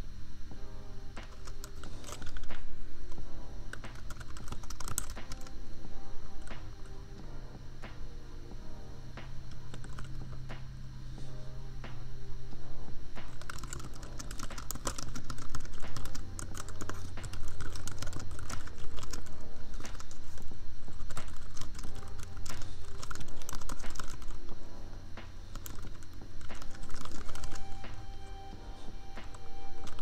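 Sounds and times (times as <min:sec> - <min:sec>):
lofi music with bass: 0:00.0 - 0:30.0
keyboard typing: 0:01.2 - 0:02.7, 0:03.7 - 0:05.6, 0:09.2 - 0:10.7, 0:13.2 - 0:24.5, 0:25.4 - 0:30.0.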